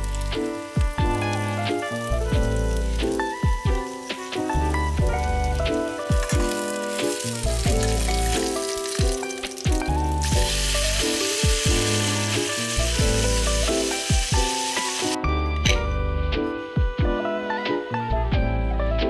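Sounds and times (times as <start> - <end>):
pancake sizzling in a frying pan: 0.0 - 15.2
background music: 0.0 - 19.0.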